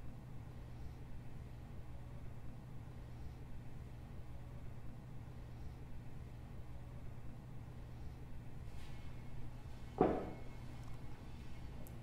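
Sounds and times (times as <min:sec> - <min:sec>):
low room hum: 0:00.0 - 0:12.0
tool knocking on wooden bench: 0:10.0 - 0:10.4.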